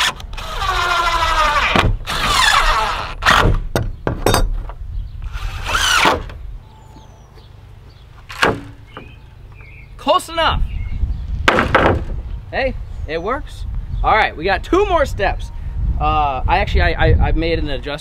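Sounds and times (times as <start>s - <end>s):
cordless drill driving screws: 0.0s - 3.6s, 5.2s - 6.3s.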